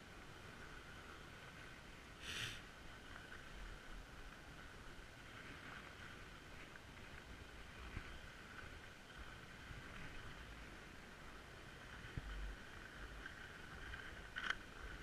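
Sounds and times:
skis hissing over snow: 2.2s - 2.6s
small tick: 13.9s - 14.7s.

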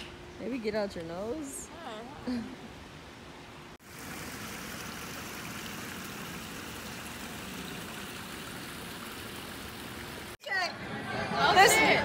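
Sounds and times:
water running over rocks: 3.8s - 10.4s.

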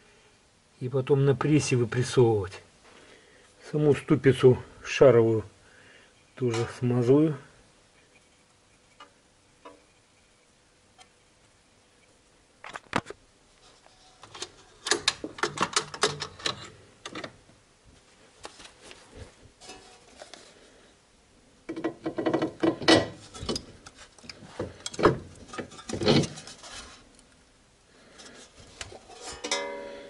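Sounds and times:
metal parts and tools clinking: 21.7s - 26.7s, 28.9s - 30.0s.

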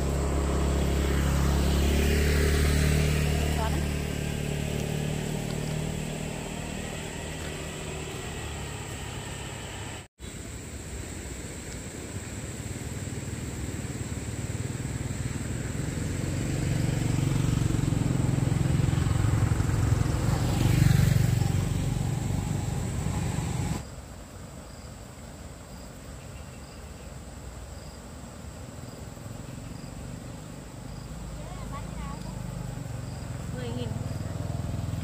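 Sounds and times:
motor vehicle passing: 0.0s - 10.1s, 13.0s - 23.8s, 29.1s - 35.0s
insects chirping: 0.0s - 35.0s.

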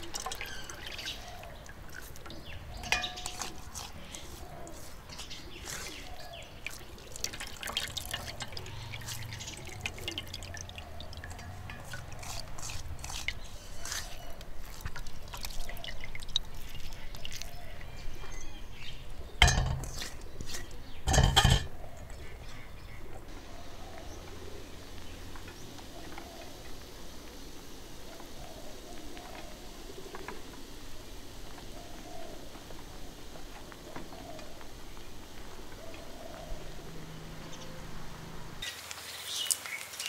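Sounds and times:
liquid dripping into bowl: 0.0s - 3.6s, 6.1s - 13.4s, 14.4s - 17.9s.

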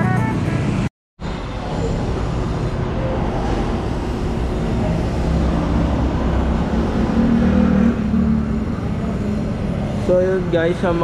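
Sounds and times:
road traffic rumble: 0.2s - 11.0s.

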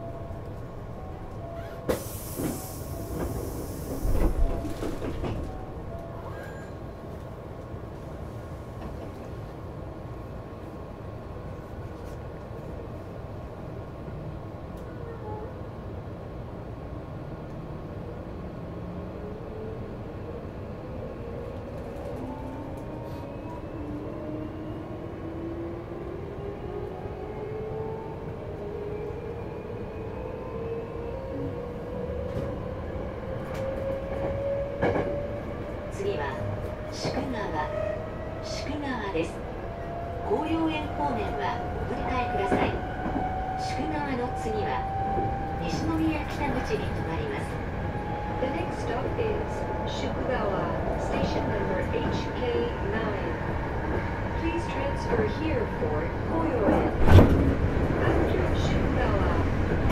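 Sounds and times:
train doors thumping shut: 56.6s - 57.6s.

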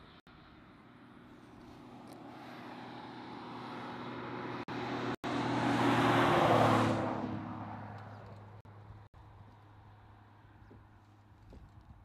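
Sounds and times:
vehicle engine and tyre noise: 0.0s - 12.0s.

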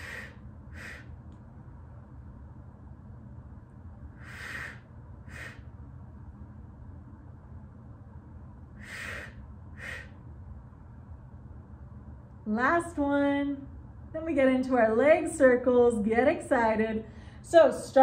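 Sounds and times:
woman breathing sharply: 0.0s - 1.2s, 4.1s - 5.8s, 8.8s - 10.3s, 17.1s - 17.5s
low hum: 0.0s - 18.0s.

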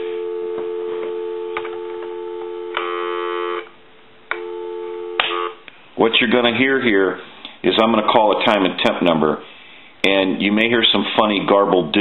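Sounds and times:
telephone dial tone: 0.0s - 3.7s, 4.3s - 5.6s
phone line clicks: 0.5s - 3.7s, 4.3s - 5.6s.

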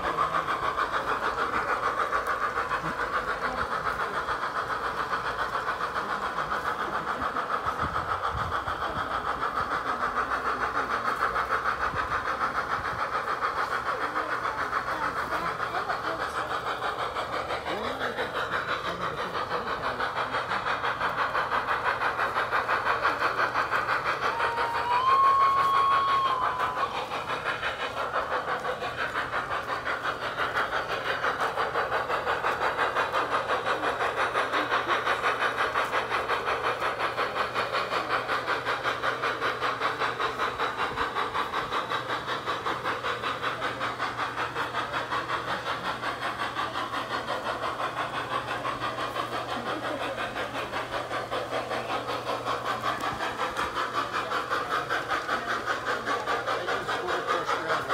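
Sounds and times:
model trains running rhythmically: 0.0s - 57.9s
locomotive whistle: 24.3s - 26.8s.

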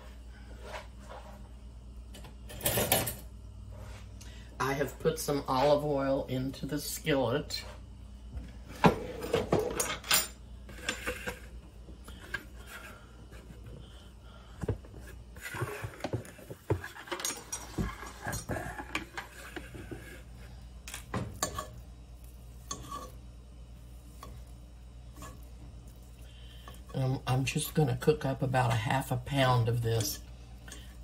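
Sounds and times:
cookware clinking on stovetop: 20.9s - 21.8s
fork scraping cast iron skillet: 21.0s - 23.2s, 25.1s - 25.5s.

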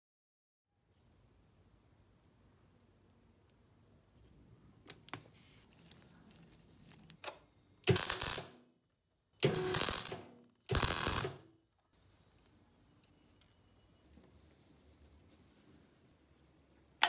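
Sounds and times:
welder arc crackling: 7.8s - 8.7s, 9.4s - 11.5s.

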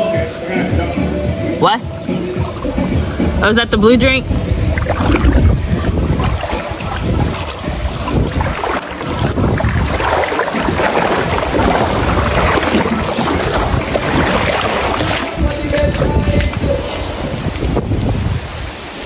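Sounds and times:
wind buffeting microphone: 1.9s - 19.0s.

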